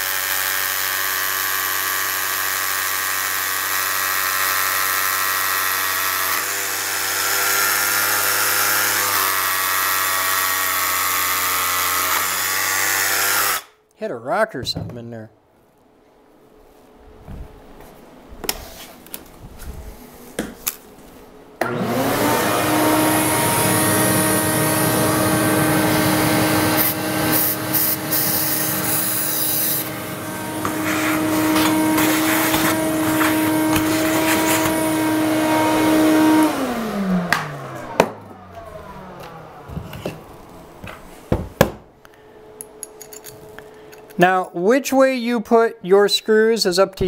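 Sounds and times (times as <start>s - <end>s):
electric motor running: 0.0s - 13.7s, 21.6s - 40.6s.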